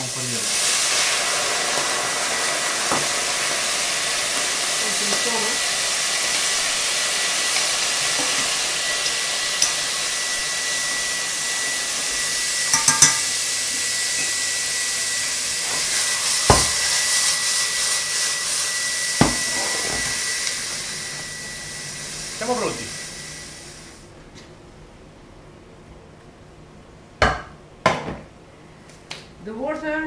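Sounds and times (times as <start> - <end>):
meat sizzling in a frying pan: 0.0 - 24.0
thin high tone: 8.8 - 14.5
cookware knocks: 12.7 - 13.3.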